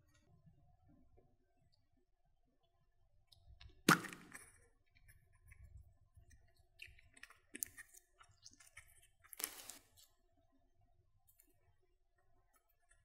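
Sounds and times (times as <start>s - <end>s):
plastic capsule popping open: 3.8s - 4.5s.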